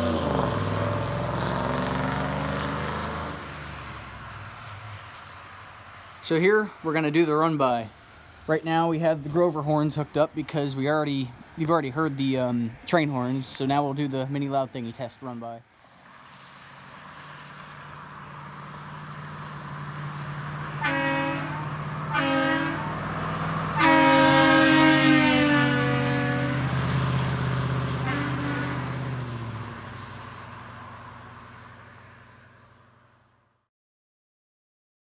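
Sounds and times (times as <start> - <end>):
truck engine driving past: 0.0 - 7.6, 15.8 - 33.3
air horn blasts: 20.8 - 23.0, 23.8 - 26.8, 28.0 - 29.0.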